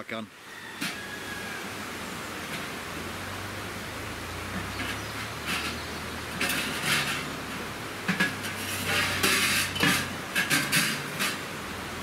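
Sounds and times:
metal pipes clinking and scraping: 4.6s - 11.5s.

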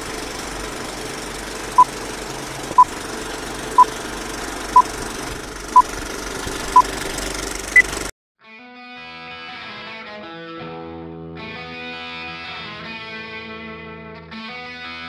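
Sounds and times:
film projector clatter: 0.0s - 8.1s.

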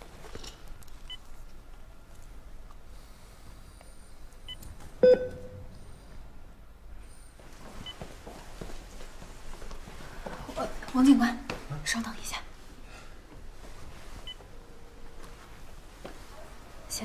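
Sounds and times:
short electronic beeps: 5.0s - 5.6s.

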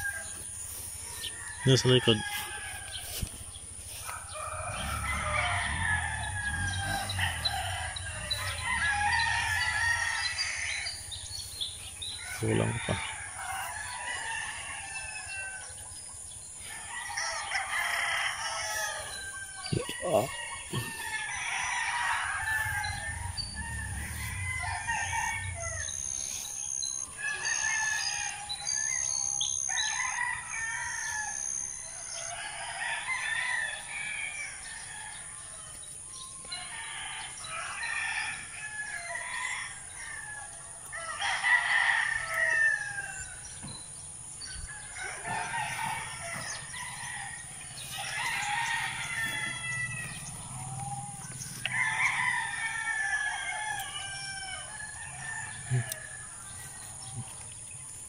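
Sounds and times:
rooster crowing: 0.0s - 35.6s, 36.5s - 43.8s, 44.4s - 57.5s
chickens clucking: 15.7s - 27.4s.

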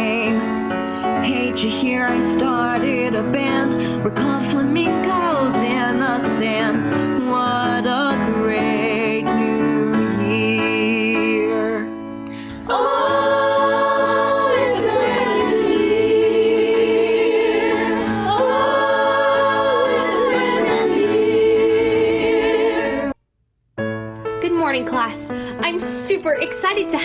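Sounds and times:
cast singing ensemble number: 12.6s - 23.2s.

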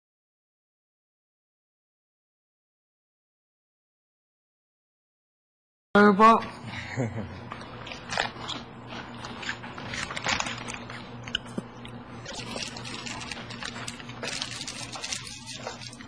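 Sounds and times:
chips being bitten and chewed: 7.8s - 16.0s.

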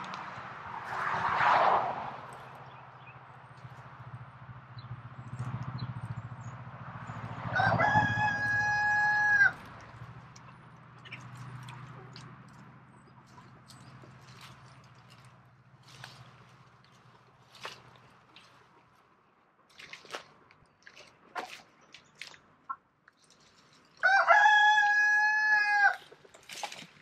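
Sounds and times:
rooster crowing: 7.5s - 9.7s, 24.0s - 26.0s.

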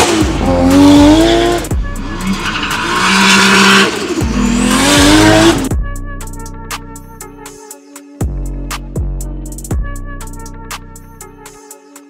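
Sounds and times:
car engine revving: 0.0s - 5.7s
sliding tyres squealing: 0.0s - 5.7s.

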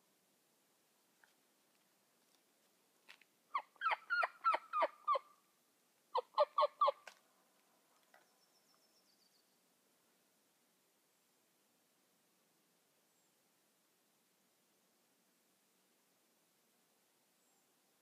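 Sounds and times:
turkey yelps: 3.5s - 5.4s, 6.2s - 7.1s
small bird chirping: 8.2s - 9.6s.

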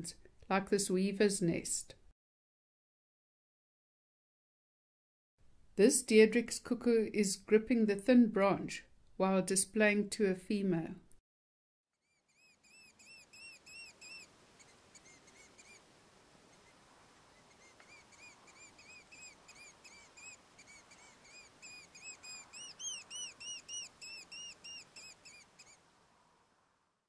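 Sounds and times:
cuckoo calling: 12.3s - 25.9s
faint steady hiss: 12.3s - 27.0s.

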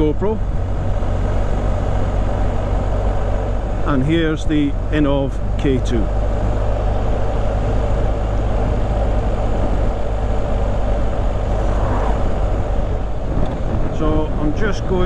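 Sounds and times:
motorcycle engine drone: 0.0s - 15.0s
wind rush: 4.8s - 15.0s.

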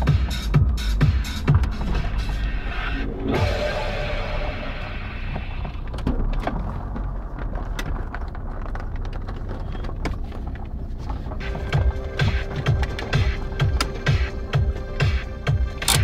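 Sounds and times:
electronic music with steady beat: 0.0s - 5.8s, 11.4s - 16.0s
car cabin low rumble: 0.0s - 16.0s.

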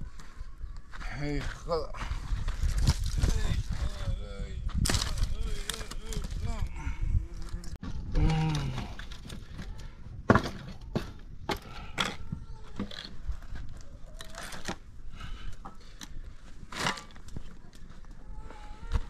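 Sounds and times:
sharp wood crack: 4.8s - 6.2s
sticks snapping and knocking: 4.8s - 6.2s.

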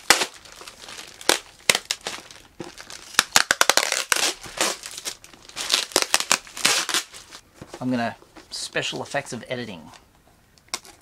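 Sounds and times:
parcel wrapping tearing and crinkling: 0.0s - 7.4s.

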